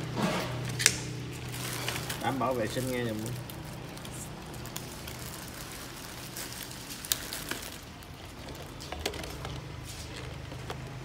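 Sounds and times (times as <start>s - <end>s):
low background hum: 0.0s - 11.0s
plastic cups and utensils clicking: 7.1s - 11.0s.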